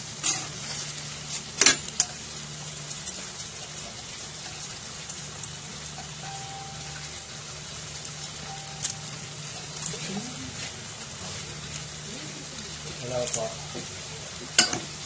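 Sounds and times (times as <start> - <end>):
food sizzling in a wok: 0.0 - 15.0
low hum: 5.8 - 13.0.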